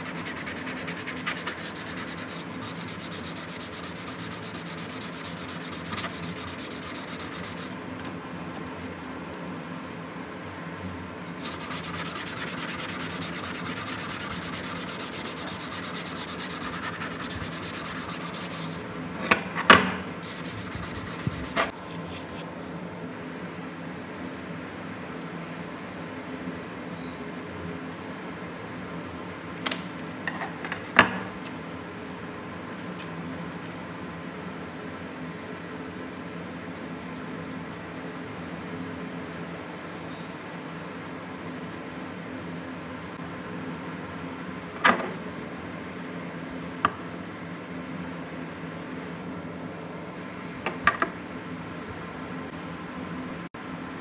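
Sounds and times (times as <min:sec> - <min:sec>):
pad scrubbing metal: 0:00.0 - 0:07.8, 0:11.3 - 0:18.8, 0:20.2 - 0:21.7.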